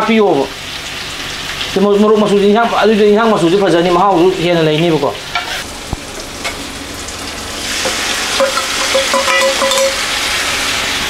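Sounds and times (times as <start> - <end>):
masala sizzling in a wok: 0.0 - 1.8, 5.2 - 11.0
metal spoon scraping a pan: 7.8 - 10.1
spoon squeaking against pan: 8.4 - 10.0.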